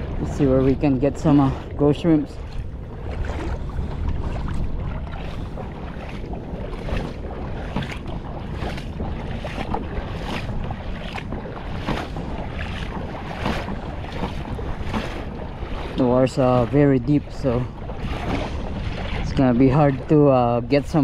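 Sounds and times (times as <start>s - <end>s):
wind buffeting microphone: 0.0s - 21.0s
footsteps: 2.3s - 15.9s.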